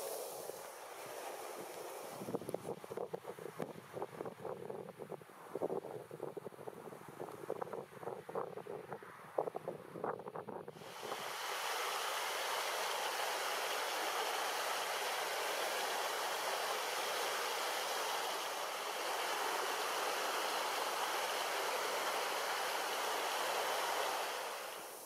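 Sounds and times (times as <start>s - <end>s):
river current rushing: 0.0s - 2.4s, 10.8s - 25.0s.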